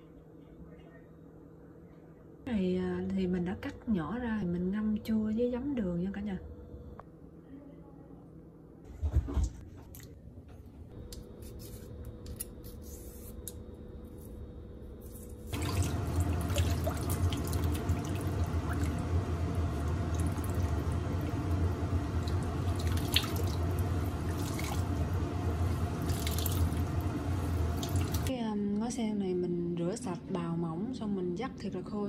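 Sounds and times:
tap water running into basin: 0:15.5 - 0:28.3.

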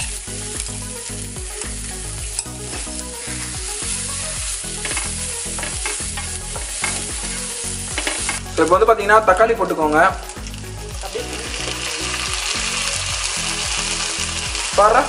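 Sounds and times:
spatula stirring in a pan: 0:00.0 - 0:08.6
onions sizzling in a pan: 0:00.0 - 0:15.0.

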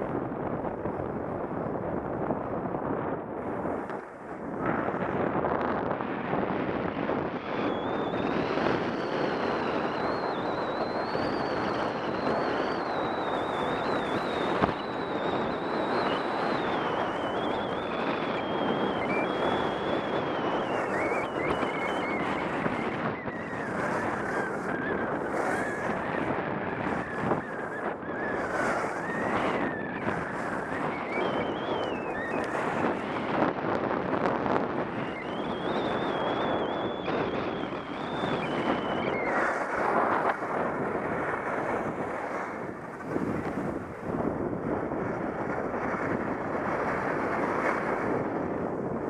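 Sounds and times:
wind on microphone: 0:00.0 - 0:49.0
thin wavering whistle: 0:07.4 - 0:33.0, 0:34.8 - 0:40.2
skis sliding on snow: 0:08.2 - 0:36.0, 0:37.1 - 0:49.0.

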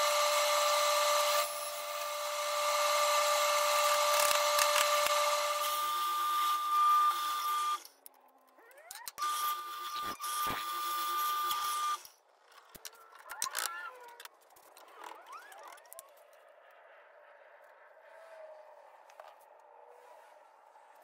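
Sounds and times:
drill press whining: 0:00.0 - 0:07.9.

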